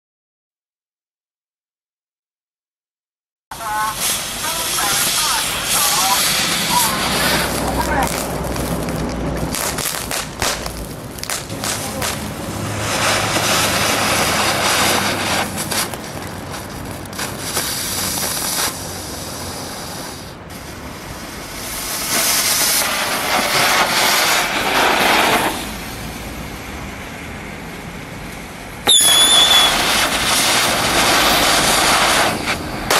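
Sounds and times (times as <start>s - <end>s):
firework burst: 3.5s - 26.3s, 28.8s - 32.9s
fireworks hissing: 3.5s - 32.9s
high whistle: 28.8s - 30.1s.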